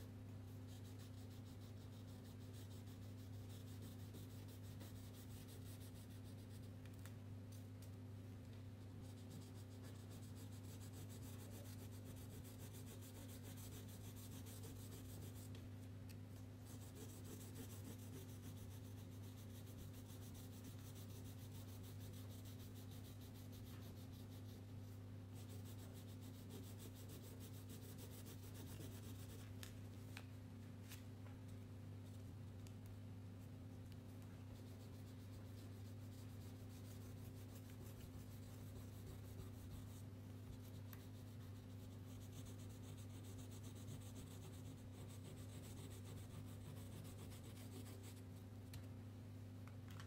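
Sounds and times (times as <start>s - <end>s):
low electrical hum: 0.0s - 50.0s
crayon scratching on paper: 9.0s - 15.5s, 16.7s - 24.7s, 25.4s - 29.4s, 34.6s - 40.0s, 40.6s - 48.2s.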